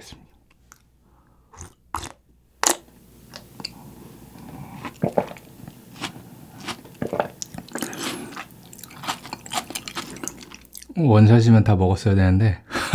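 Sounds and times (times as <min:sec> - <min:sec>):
swallowing: 0:03.3 - 0:10.9
person slurping broth: 0:03.6 - 0:10.9.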